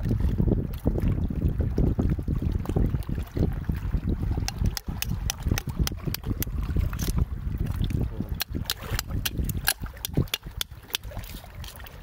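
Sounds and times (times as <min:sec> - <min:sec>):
iron rod scraping rock: 0:04.4 - 0:07.2, 0:08.4 - 0:12.0.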